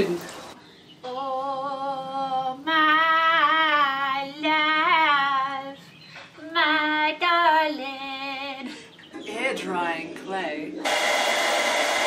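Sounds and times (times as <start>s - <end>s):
woman singing long notes: 1.0s - 5.8s.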